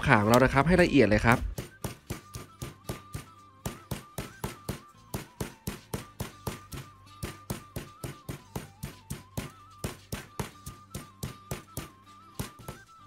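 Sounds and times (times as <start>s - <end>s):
faint background music: 0.0s - 13.0s
pestle pounding in stone mortar: 0.3s - 12.9s.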